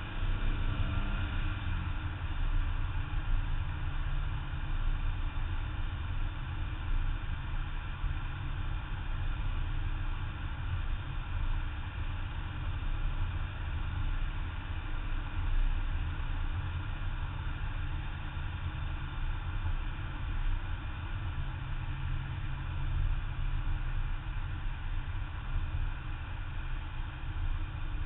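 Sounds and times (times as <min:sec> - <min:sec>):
car engine running: 0:00.0 - 0:28.0
road noise: 0:00.0 - 0:28.0.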